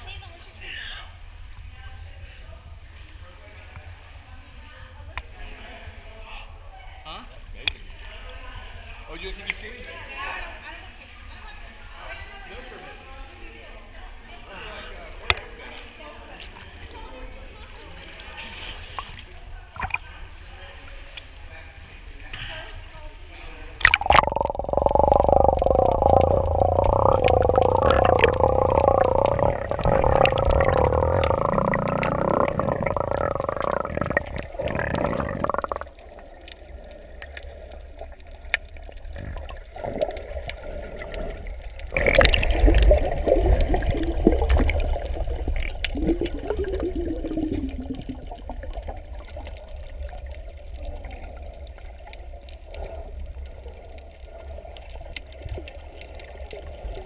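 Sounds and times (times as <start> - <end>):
water rushing and bubbling underwater: 18.8 - 21.4, 23.8 - 57.0.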